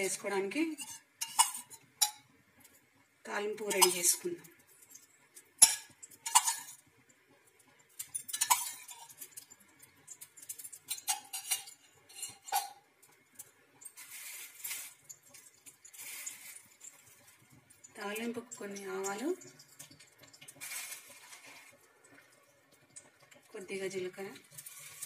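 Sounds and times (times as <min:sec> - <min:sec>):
metal spoon clinking on bowls: 0:00.8 - 0:02.3, 0:03.7 - 0:04.2, 0:04.9 - 0:06.8, 0:08.0 - 0:12.8.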